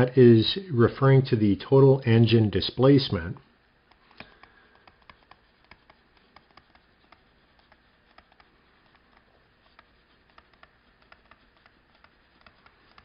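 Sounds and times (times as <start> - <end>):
stylus writing on tablet screen: 3.8 - 13.0.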